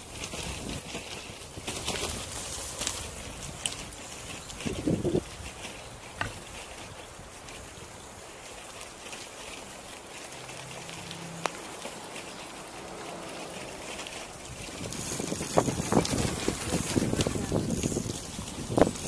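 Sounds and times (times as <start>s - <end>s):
wind buffeting microphone: 0.0s - 8.2s, 14.0s - 19.0s
bicycle tyres rolling on gravel: 0.0s - 19.0s.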